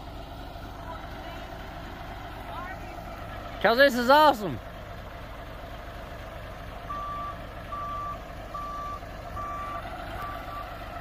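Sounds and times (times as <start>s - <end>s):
engine running: 0.0s - 11.0s
backup alarm beeping: 6.9s - 10.7s.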